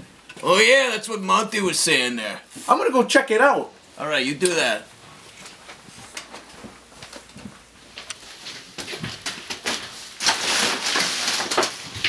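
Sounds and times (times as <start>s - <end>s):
footsteps: 5.0s - 10.2s
window blinds clattering: 8.8s - 12.0s.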